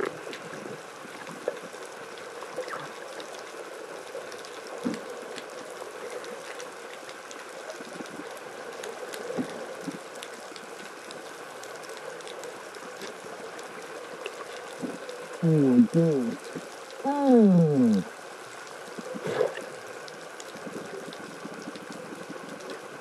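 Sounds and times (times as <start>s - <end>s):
underwater hiss: 19.1s - 21.2s.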